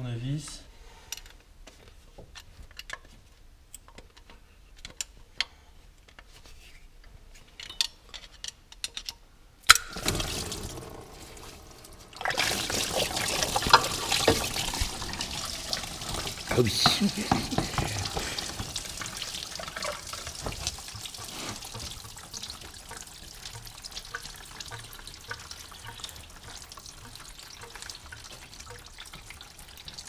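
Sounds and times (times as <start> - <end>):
clicks and knocks of hand tools: 7.6 - 10.0
coolant splashing out: 9.7 - 30.0.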